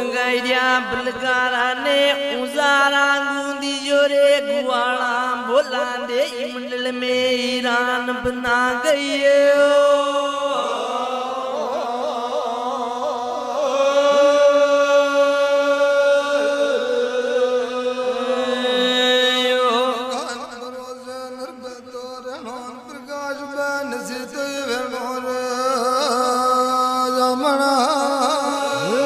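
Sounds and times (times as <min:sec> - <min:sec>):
person chanting long notes: 0:10.2 - 0:20.2, 0:25.6 - 0:29.0.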